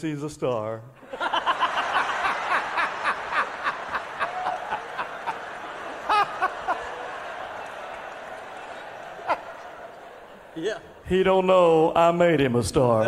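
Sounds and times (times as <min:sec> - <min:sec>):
louder laughing voice: 0:01.0 - 0:11.0
crowd laughing: 0:01.0 - 0:11.9.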